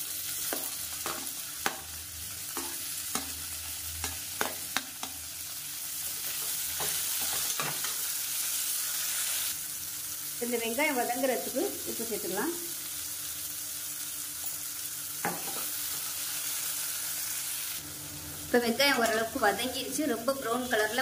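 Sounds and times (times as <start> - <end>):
onions sizzling in hot oil: 0.0 - 21.0.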